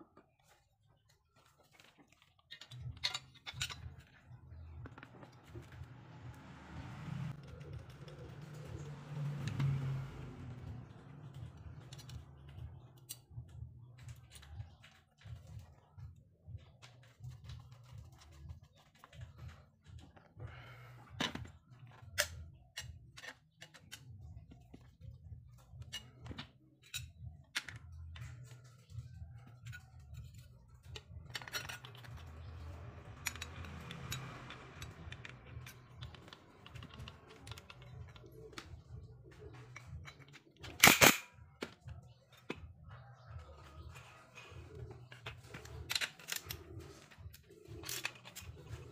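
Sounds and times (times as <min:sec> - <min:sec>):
metal parts clicking and scraping: 0:01.4 - 0:06.0, 0:10.4 - 0:15.8, 0:21.2 - 0:48.9.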